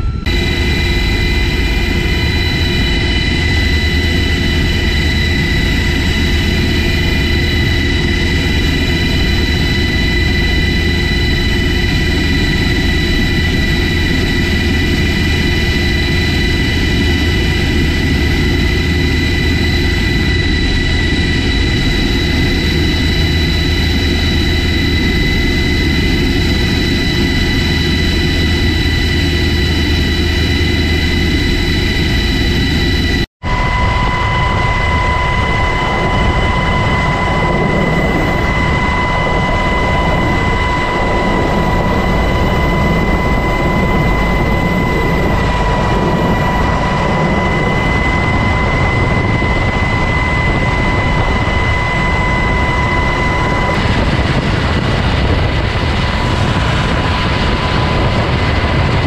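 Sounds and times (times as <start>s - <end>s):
helicopter turbine whine and drone: 0.0s - 59.0s.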